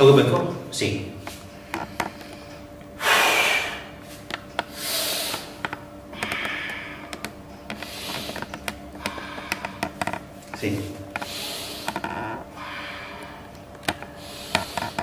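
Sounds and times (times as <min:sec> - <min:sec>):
man exhaling forcefully: 0:03.0 - 0:03.9.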